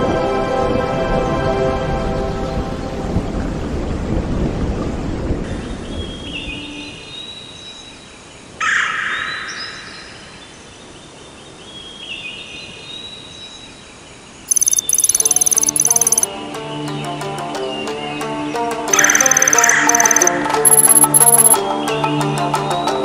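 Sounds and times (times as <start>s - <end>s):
high chirps: 14.5s - 16.3s, 18.9s - 21.6s
rapid electronic beeps: 14.5s - 16.3s, 18.9s - 21.6s.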